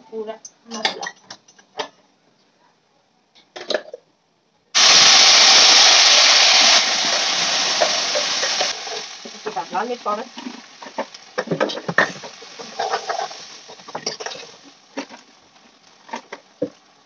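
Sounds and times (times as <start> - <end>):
paste sizzling in hot oil: 4.8 - 16.9.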